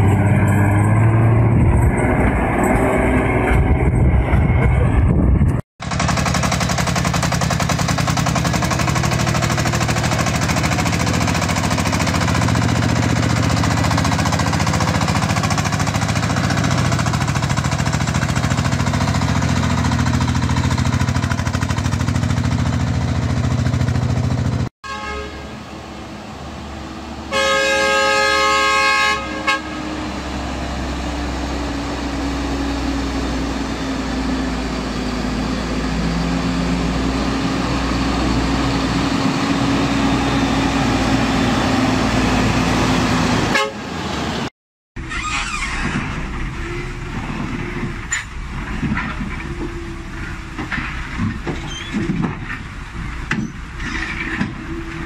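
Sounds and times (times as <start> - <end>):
lorry engine running: 0.0 - 51.6
diesel engine running: 0.0 - 55.0
truck horn: 24.8 - 25.8, 27.2 - 30.4, 42.9 - 44.2.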